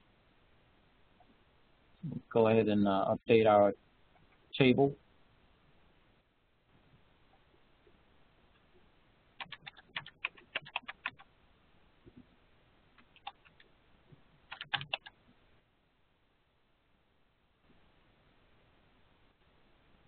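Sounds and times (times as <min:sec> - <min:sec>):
computer keyboard typing: 0:09.4 - 0:11.3, 0:13.0 - 0:13.7, 0:14.5 - 0:15.2.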